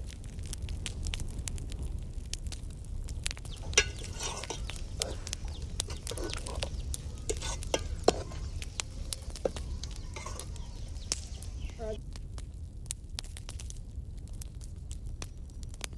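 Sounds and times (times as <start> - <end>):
onions frying in a pot: 0.0 - 15.9
ladle clinking and scraping pot: 3.5 - 12.0.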